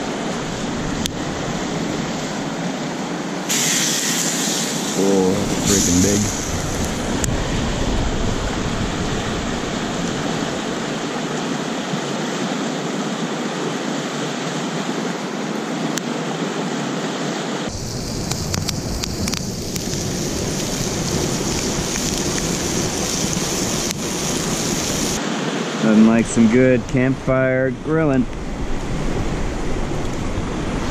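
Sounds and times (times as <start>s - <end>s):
steak sizzling on a grill: 3.5s - 7.2s, 17.7s - 25.2s
campfire popping: 3.5s - 11.0s, 17.7s - 25.2s.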